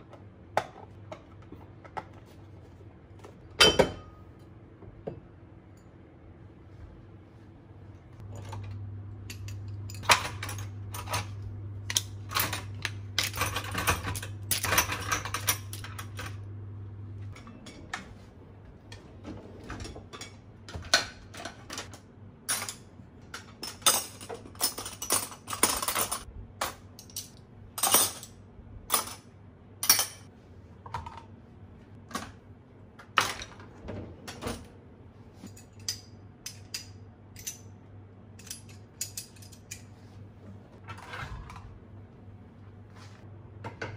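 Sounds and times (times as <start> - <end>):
steady low hum: 0.0 - 23.4
cutlery clinking and clattering: 9.4 - 16.4, 23.4 - 26.3
cutlery drawer rattling: 12.3 - 16.4, 23.6 - 26.3.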